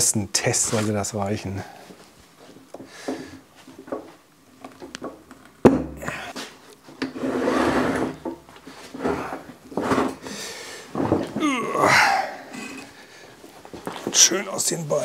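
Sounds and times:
metal scraping against wood: 6.1 - 11.3.

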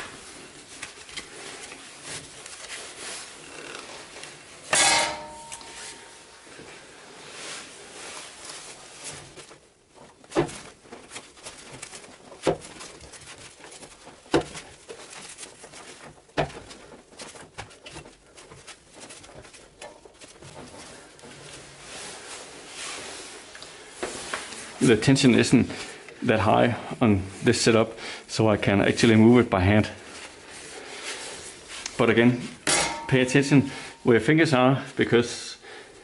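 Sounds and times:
rubber belt rubbing and scraping: 0.0 - 4.7, 5.5 - 25.0.

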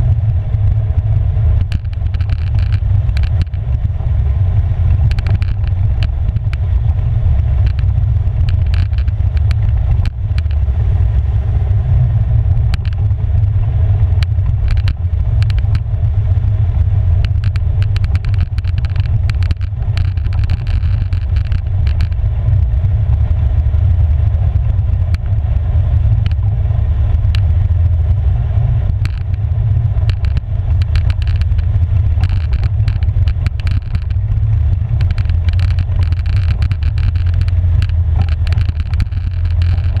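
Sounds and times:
atv engine droning: 0.0 - 40.0
knocks and rattles: 1.6 - 3.8, 4.9 - 6.7, 7.6 - 10.6, 14.2 - 15.9, 17.2 - 22.6, 28.9 - 40.0.

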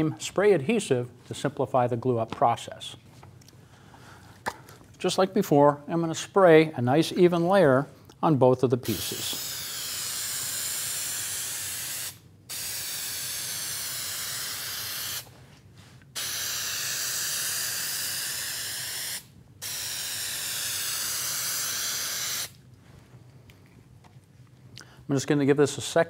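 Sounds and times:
aerosol can spraying: 8.8 - 15.3, 16.2 - 22.6.

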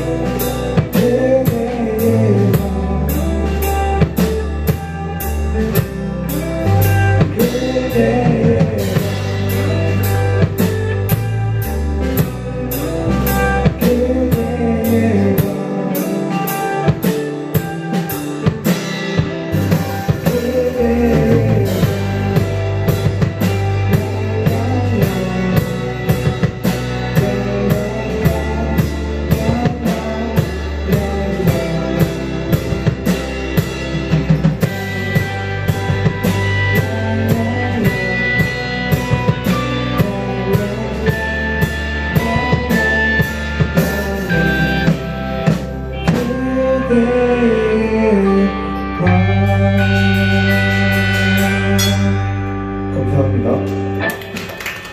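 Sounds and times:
drum kit beat: 0.0 - 47.1, 49.1 - 52.3, 53.4 - 54.9
electric bass: 0.0 - 54.9
electric guitars: 0.0 - 54.9.

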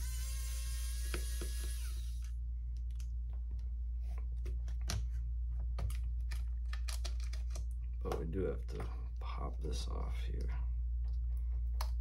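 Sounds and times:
electric screwdriver whirring: 0.0 - 2.3
steady low hum: 0.0 - 12.0.

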